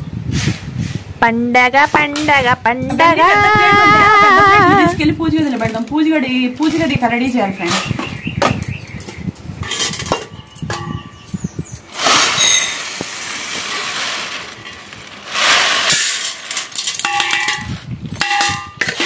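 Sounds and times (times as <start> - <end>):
metal utensils clinking: 9.0 - 11.3, 12.0 - 19.0.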